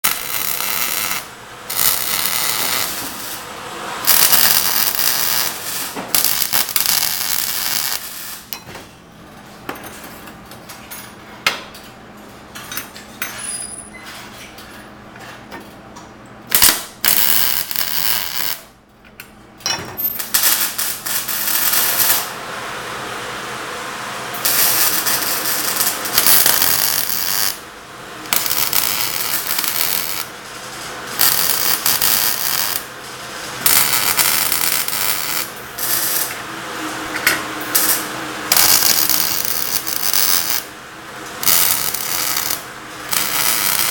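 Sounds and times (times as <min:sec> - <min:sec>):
welder arc crackling and hissing: 0:00.0 - 0:08.6, 0:16.5 - 0:18.7, 0:20.2 - 0:43.9.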